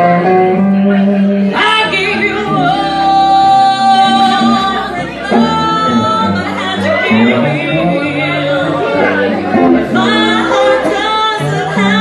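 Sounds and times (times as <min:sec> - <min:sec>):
band with guitar: 0:00.0 - 0:12.0
woman singing blues: 0:01.3 - 0:12.0.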